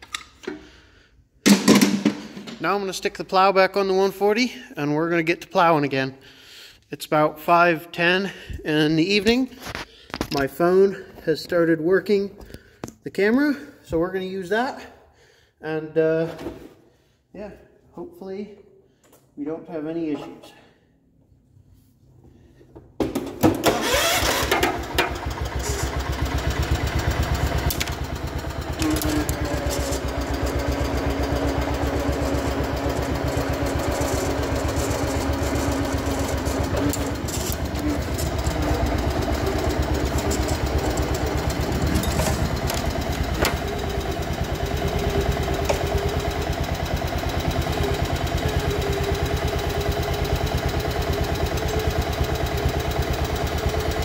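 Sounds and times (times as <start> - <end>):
tractor engine running: 23.6 - 54.0.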